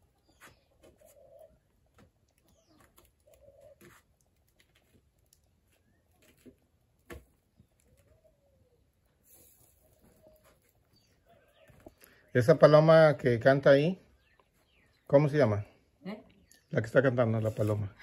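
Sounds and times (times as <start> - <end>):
dove cooing: 0.8 - 1.7, 3.2 - 4.0, 7.9 - 8.8.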